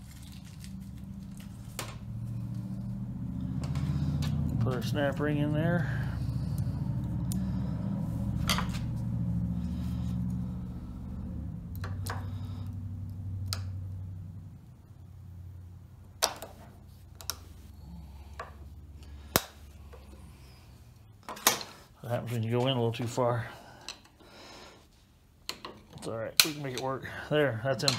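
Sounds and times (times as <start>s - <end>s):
low steady hum: 0.0s - 27.9s.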